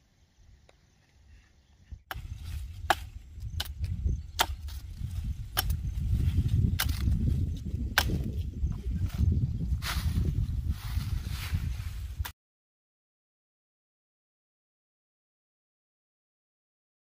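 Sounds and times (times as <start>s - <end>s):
wood chopping strikes: 2.8s - 4.8s, 5.5s - 5.9s, 6.7s - 7.2s, 7.9s - 8.3s.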